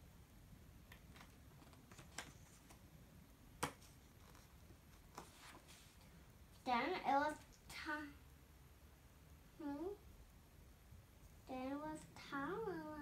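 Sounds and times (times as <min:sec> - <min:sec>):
cardboard pages clicking: 0:00.9 - 0:02.8.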